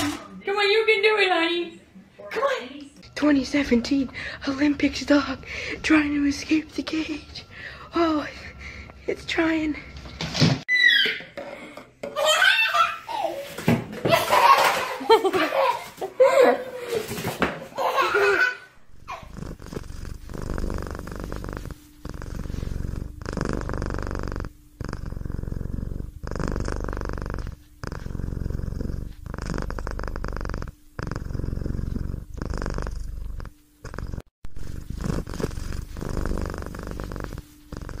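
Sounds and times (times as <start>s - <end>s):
cat purring: 18.9s - 38.0s.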